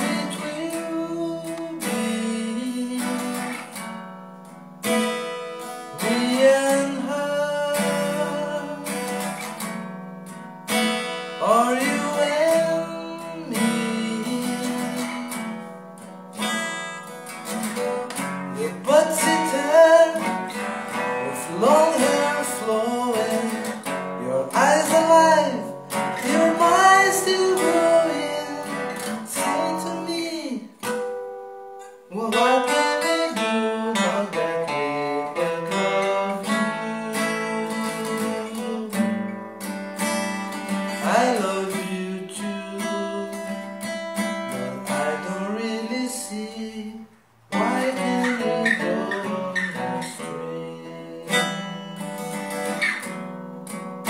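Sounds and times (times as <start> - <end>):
man singing: 0.0 - 3.8, 5.8 - 9.6, 11.2 - 15.7, 17.7 - 31.0, 32.1 - 39.3, 40.2 - 53.0
acoustic guitar strumming: 0.0 - 54.0.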